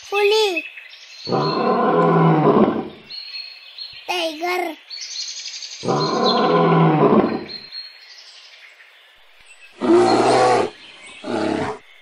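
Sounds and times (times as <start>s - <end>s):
tiger roaring: 1.3s - 3.0s, 5.8s - 7.6s, 9.8s - 11.8s.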